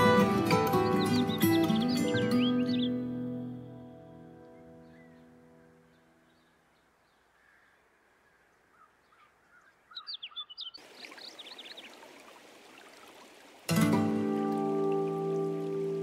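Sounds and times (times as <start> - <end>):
small birds chirping: 0.0 - 3.4, 4.4 - 13.5
background music: 0.0 - 5.6, 13.7 - 16.0.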